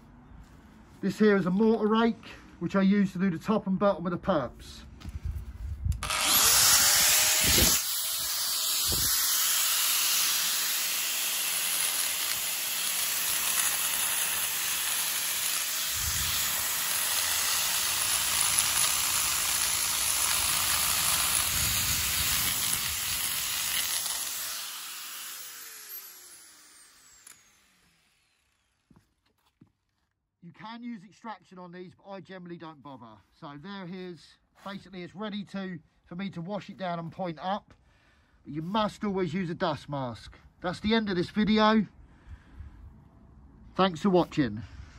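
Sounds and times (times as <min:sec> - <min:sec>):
angle grinder raking mortar: 0:06.0 - 0:29.0.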